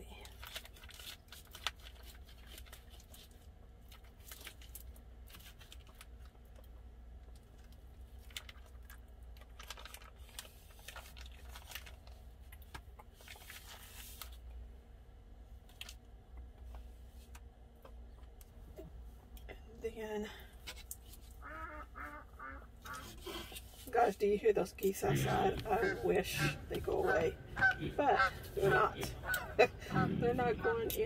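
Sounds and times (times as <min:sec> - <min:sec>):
low steady hum: 0:00.0 - 0:31.0
plastic packaging crinkling: 0:00.2 - 0:14.5.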